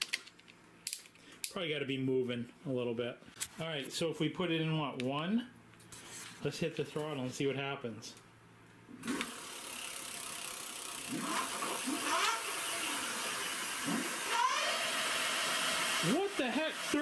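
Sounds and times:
electric hub motor whirring: 9.0 - 17.0.

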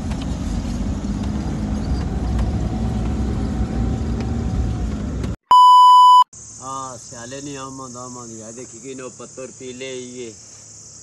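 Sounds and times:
van engine and road noise: 0.0 - 9.9
electronic beep: 5.5 - 6.3.

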